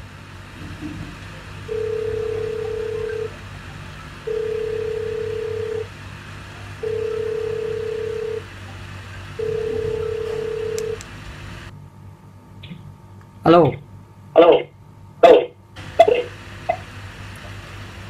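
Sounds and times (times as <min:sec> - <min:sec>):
ringback tone beeps: 0:01.7 - 0:03.3, 0:04.3 - 0:05.9, 0:06.8 - 0:08.4, 0:09.4 - 0:11.0.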